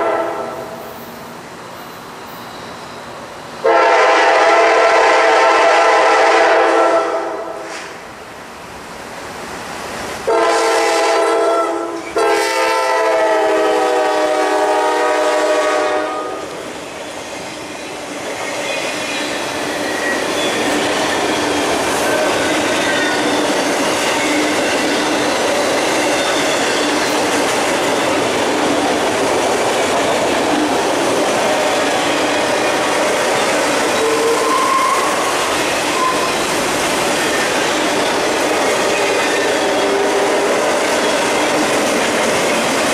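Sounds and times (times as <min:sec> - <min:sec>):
locomotive air horn: 0:00.0 - 0:00.8, 0:03.6 - 0:07.7, 0:10.3 - 0:16.5, 0:34.0 - 0:35.3
train cars rolling and clattering: 0:11.9 - 0:42.9.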